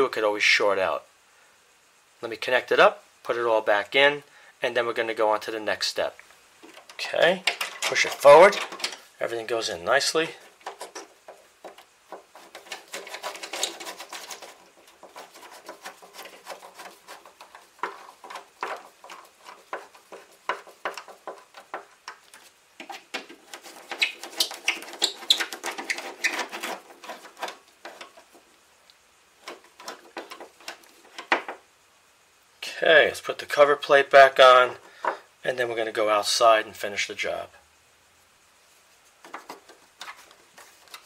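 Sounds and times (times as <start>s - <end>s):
light clicks taps and scrapes: 6.2s - 9.1s, 10.4s - 31.6s, 39.1s - 41.0s.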